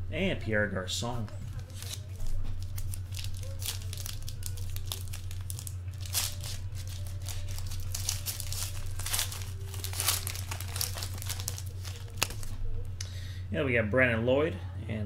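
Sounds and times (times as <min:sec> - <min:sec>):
steady low hum: 0:00.0 - 0:15.0
foil wrapper crinkling and tearing: 0:01.6 - 0:12.6.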